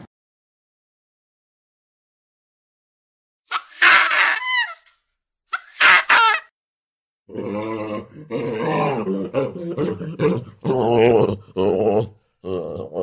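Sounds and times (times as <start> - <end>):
baboon barks: 3.5 - 4.9, 5.5 - 6.5
low-pitched baboon calls: 3.5 - 4.9.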